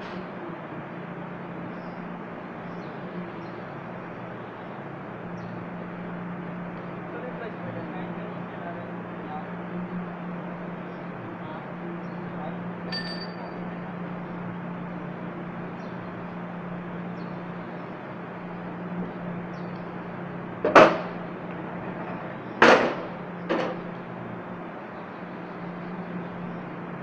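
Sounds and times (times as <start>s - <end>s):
sharp knocks: 20.6s - 21.2s, 22.1s - 23.9s.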